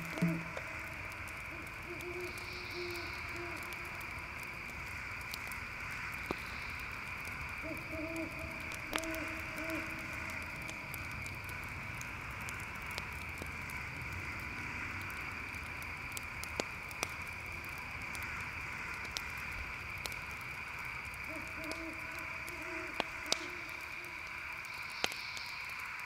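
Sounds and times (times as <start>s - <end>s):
low hooting calls: 0.0s - 4.4s, 6.2s - 11.0s, 21.2s - 25.7s
campfire crackling: 0.0s - 26.0s
crickets trilling: 0.0s - 26.0s.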